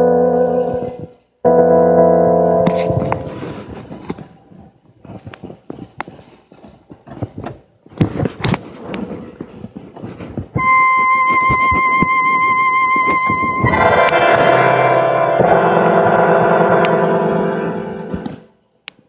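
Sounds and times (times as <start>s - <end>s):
electronic organ high note: 0.0s - 3.6s, 10.6s - 18.5s
organ chord: 0.0s - 3.6s, 13.6s - 18.5s
scattered knocks and clicks: 2.6s - 18.4s.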